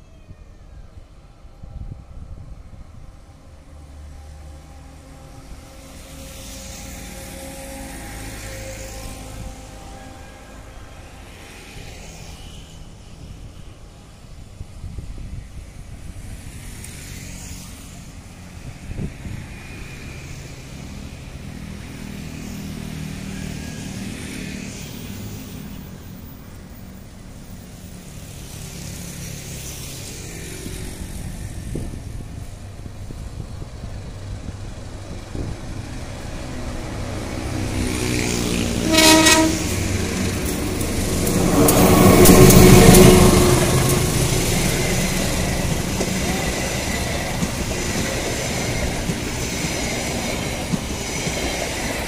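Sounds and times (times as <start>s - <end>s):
locomotive engine passing: 2.8s - 14.8s, 16.0s - 52.0s
road traffic rumbling: 2.9s - 15.4s, 16.0s - 52.0s
locomotive horn blast: 4.3s - 10.9s, 38.2s - 45.9s.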